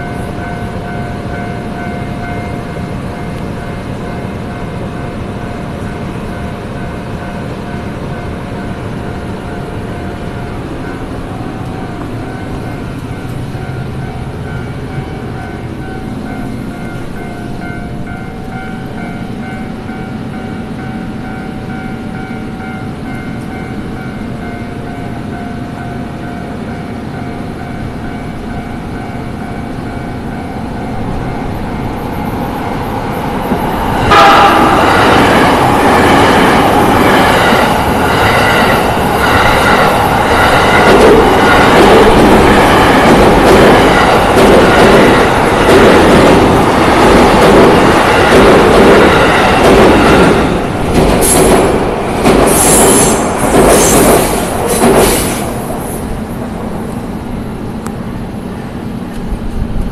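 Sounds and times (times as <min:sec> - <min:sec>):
level crossing warning bell ringing: 0:00.0 - 0:32.1, 0:33.9 - 0:48.4
electric train passing at speed: 0:00.0 - 0:59.9
train wheels clattering on track: 0:29.4 - 0:57.1.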